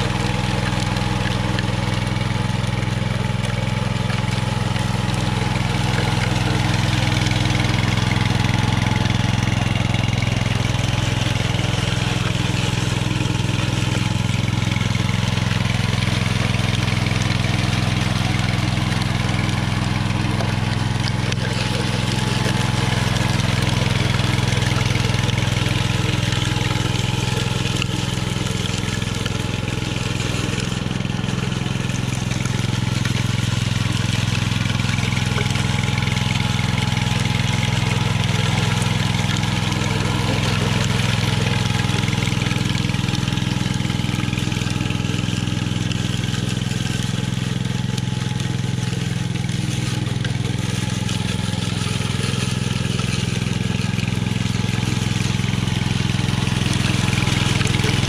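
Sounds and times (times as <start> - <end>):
small gas engine running: 0.0 - 58.0
trowel blades smoothing concrete: 17.5 - 58.0.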